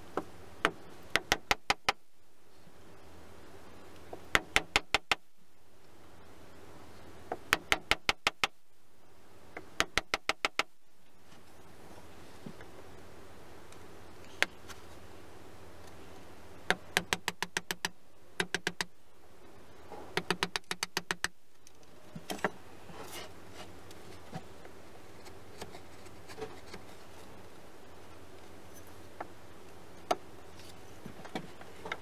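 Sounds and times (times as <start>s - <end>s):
hand tool tapping wood: 0.2s - 2.0s, 4.1s - 5.2s, 7.3s - 8.6s, 9.6s - 10.7s, 16.7s - 18.9s, 20.1s - 21.4s.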